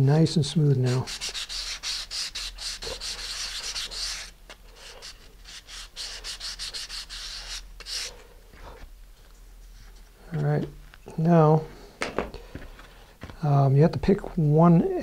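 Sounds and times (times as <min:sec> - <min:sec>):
sanding block scraping: 0:00.8 - 0:08.1.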